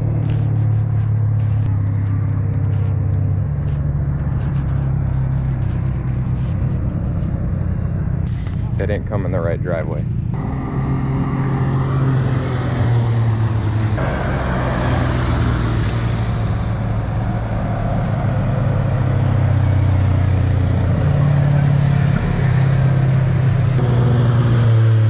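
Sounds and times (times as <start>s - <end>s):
tyre and road noise: 0.0s - 25.0s
utility vehicle engines passing: 0.0s - 25.0s.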